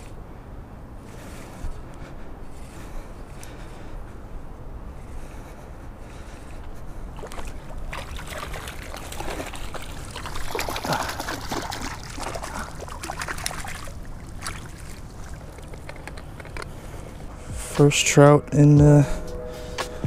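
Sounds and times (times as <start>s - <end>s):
water splashing and sloshing: 6.2s - 17.7s.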